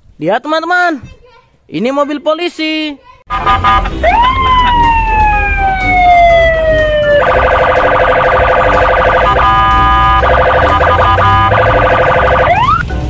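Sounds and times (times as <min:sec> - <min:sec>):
police siren wailing and yelping: 0:03.3 - 0:12.8.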